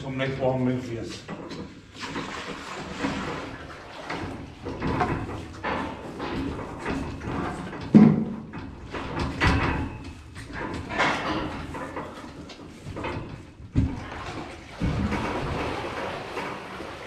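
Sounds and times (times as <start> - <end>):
plastic buckets knocking metal rails: 1.3 - 17.0.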